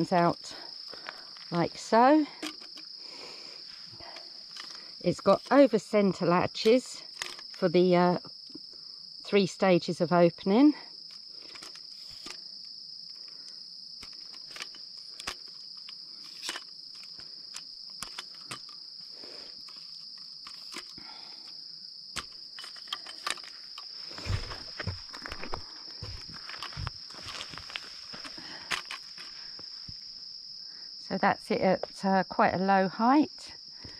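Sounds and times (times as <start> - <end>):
insect chorus: 0.0 - 33.9
tripod latches clicking: 2.4 - 2.9, 6.6 - 7.6, 11.1 - 12.4, 14.0 - 18.8, 19.6 - 21.0, 22.2 - 29.3
tripod set down thumps: 22.2 - 29.0.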